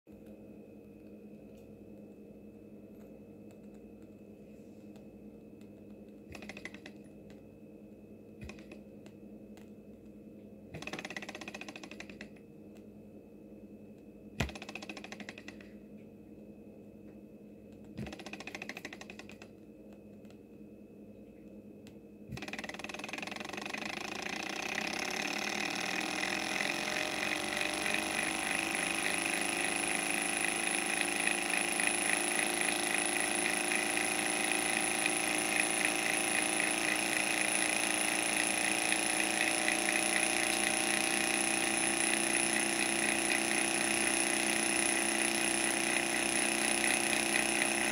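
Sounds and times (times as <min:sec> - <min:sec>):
sharp click: 0:05.6 - 0:07.4.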